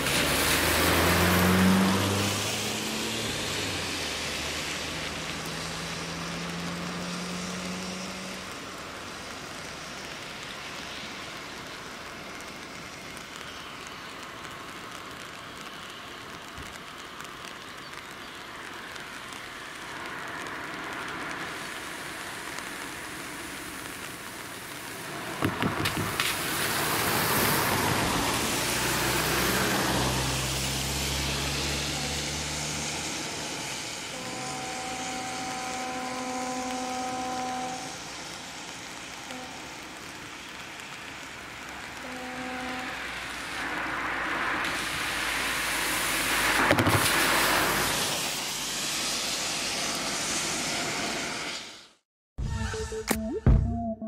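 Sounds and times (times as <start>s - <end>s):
car engine: 0.0s - 9.9s, 24.9s - 38.3s
car passing: 0.0s - 11.5s, 18.9s - 51.9s
tyres hissing on wet road: 0.0s - 52.0s.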